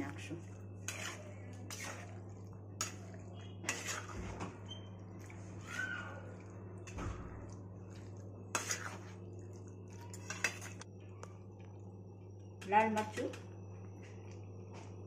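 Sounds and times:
metal spatula scraping steel pan: 0.8 - 2.2, 3.6 - 4.3, 8.5 - 9.2.

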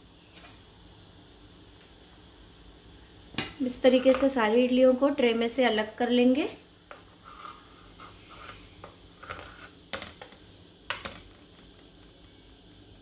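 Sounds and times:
metal spoon scraping metal plate: 7.2 - 9.8.

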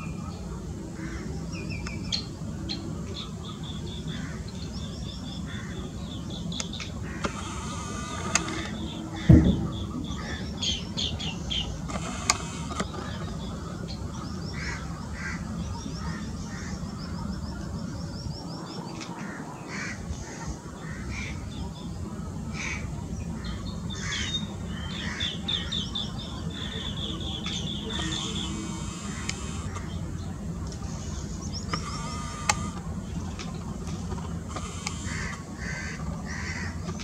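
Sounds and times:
low background rumble: 0.0 - 28.5
birds trilling: 0.0 - 37.0
single thump: 9.3 - 10.4.

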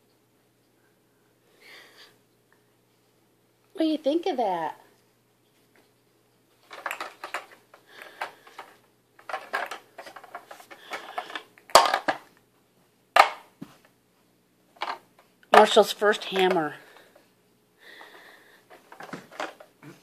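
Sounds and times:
plastic toy hammer and balls clattering: 6.6 - 12.3, 13.2 - 13.5, 14.8 - 16.8, 18.7 - 19.7.

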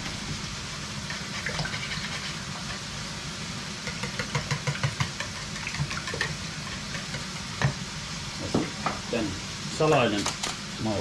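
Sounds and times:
bacon frying in a pan: 0.0 - 11.0
whisk beating eggs in a bowl: 1.0 - 2.9, 3.8 - 7.8.

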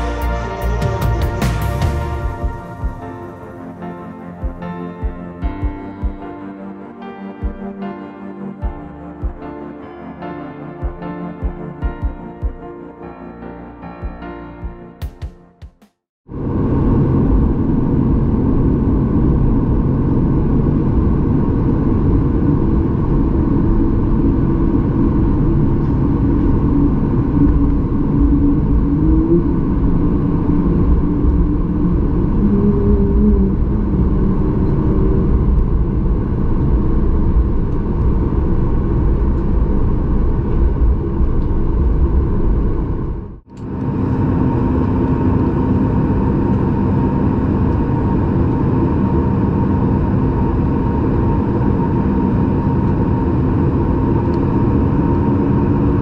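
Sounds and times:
airplane cabin rumble and hum: 16.3 - 56.0.

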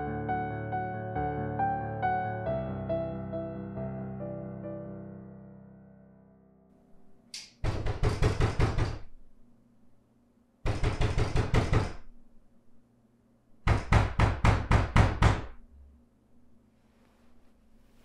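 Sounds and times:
knocking on a door: 7.6 - 9.2, 10.7 - 12.1, 13.6 - 15.6.

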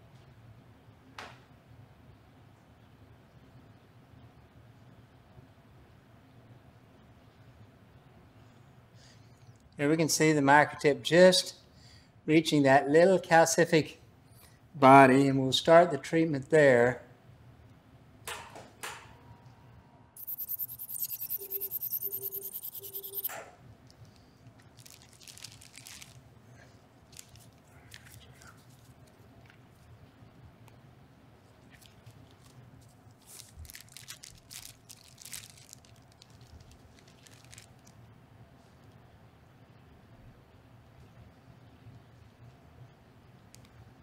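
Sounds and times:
rapid pulsing high-pitched hiss: 20.2 - 23.3
short low beeps: 20.2 - 23.3
plastic cover crinkling: 24.6 - 26.3, 27.1 - 29.2, 31.7 - 38.0.

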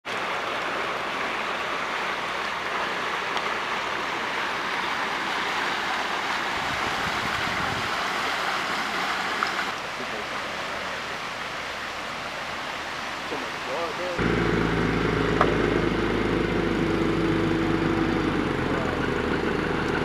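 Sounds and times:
running water: 0.0 - 20.0
wind rumble on microphone: 6.5 - 8.0.

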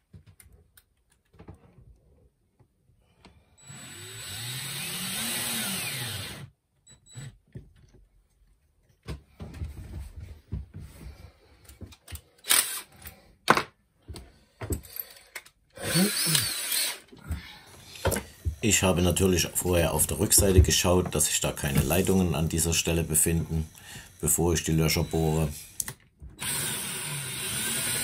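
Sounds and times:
power drill boring holes: 3.6 - 6.5, 12.4 - 13.0, 15.8 - 28.0.

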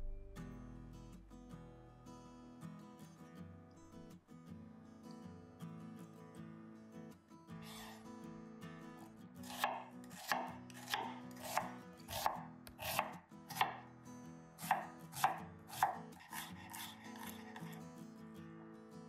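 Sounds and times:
knife chopping on cutting board: 9.4 - 13.8, 14.6 - 17.8.

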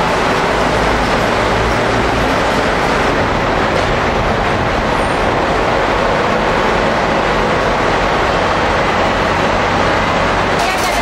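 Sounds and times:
machinery running: 0.0 - 11.0.

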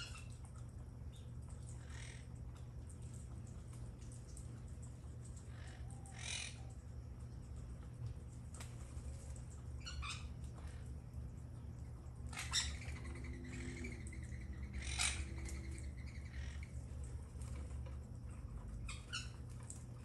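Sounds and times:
parakeets squawking: 5.5 - 6.6, 12.3 - 16.7.

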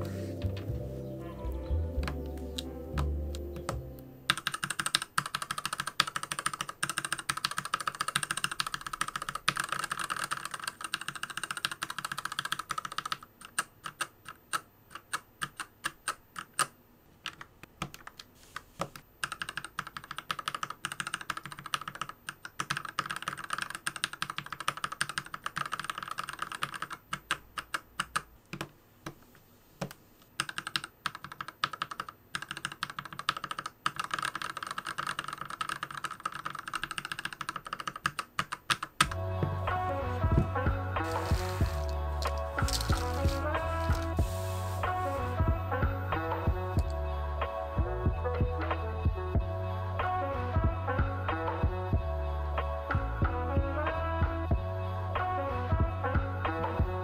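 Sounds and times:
mechanical keyboard typing: 3.0 - 18.3, 19.2 - 28.7, 30.4 - 39.2, 41.0 - 44.2.

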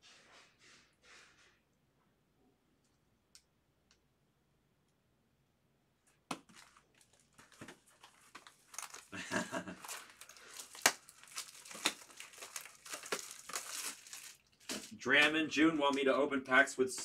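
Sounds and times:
plastic packaging crinkling and tearing: 6.4 - 17.0.

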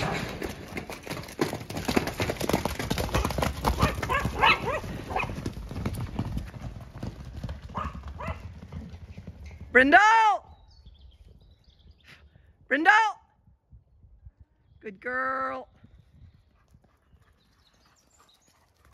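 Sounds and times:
hoofbeats on muddy grass: 0.0 - 9.7.

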